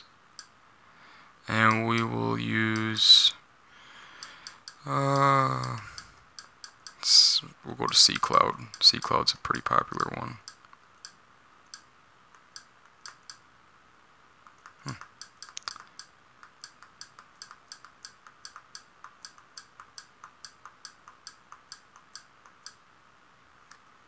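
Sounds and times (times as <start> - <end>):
keyboard key clicks: 14.4 - 22.8.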